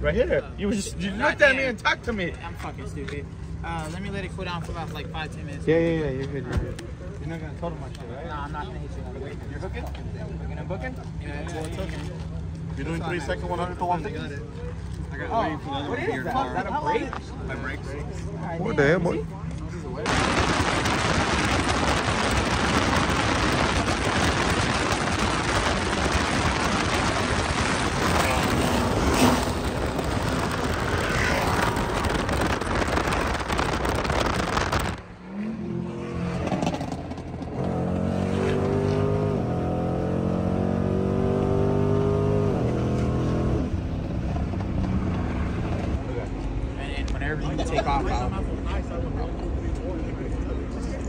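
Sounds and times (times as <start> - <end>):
wind and road rush: 0.0 - 51.0
car engine accelerating: 20.1 - 46.0.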